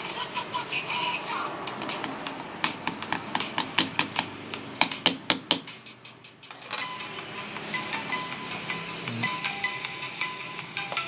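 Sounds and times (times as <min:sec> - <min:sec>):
tool tapping metal watch bracelet: 0:01.8 - 0:05.6.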